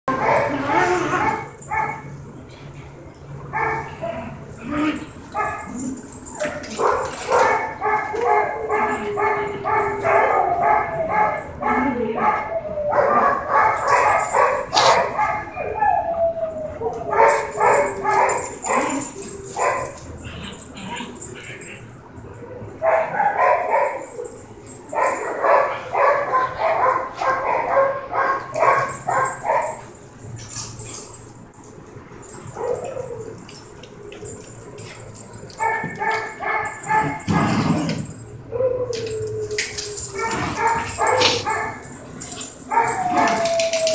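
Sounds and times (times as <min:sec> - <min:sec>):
dog barking: 0:03.5 - 0:04.3, 0:06.8 - 0:15.6, 0:17.1 - 0:19.0, 0:22.8 - 0:24.0, 0:25.0 - 0:29.8, 0:35.6 - 0:37.6, 0:40.2 - 0:41.8.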